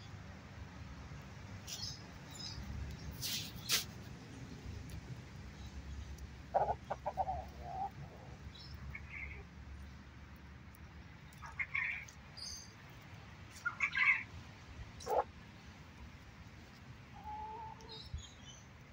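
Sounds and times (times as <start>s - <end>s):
chickens clucking: 6.1s - 9.5s, 11.3s - 12.2s, 13.5s - 14.4s, 15.0s - 15.4s, 17.1s - 18.0s.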